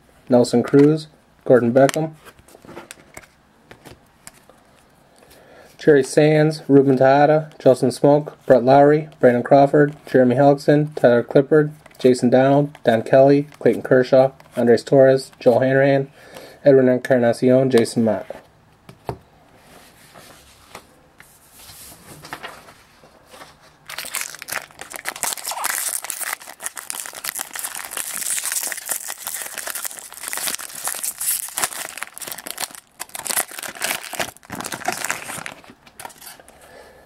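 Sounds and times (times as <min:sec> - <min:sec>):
foil wrapper crinkling and tearing: 0:23.9 - 0:36.5.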